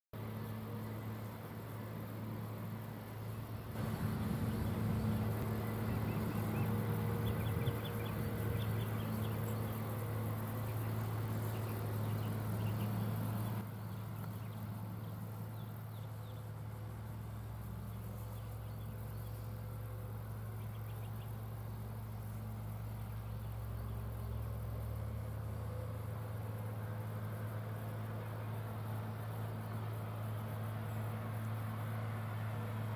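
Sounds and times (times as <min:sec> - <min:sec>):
tractor diesel engine running: 0:02.2 - 0:32.9
tractor diesel engine under load: 0:03.7 - 0:14.0.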